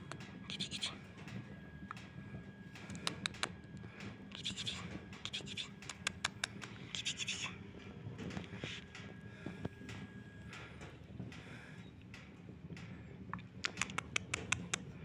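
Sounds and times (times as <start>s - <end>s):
sharp clicks: 2.8s - 3.6s, 4.3s - 7.4s, 12.8s - 14.9s
hand rubbing on fur: 6.8s - 7.5s.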